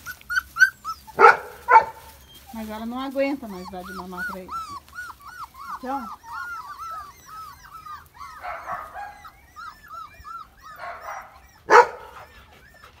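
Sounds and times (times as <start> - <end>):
puppies whining and yipping: 0.0 - 13.0
sharp bark: 1.2 - 2.0, 10.8 - 12.1.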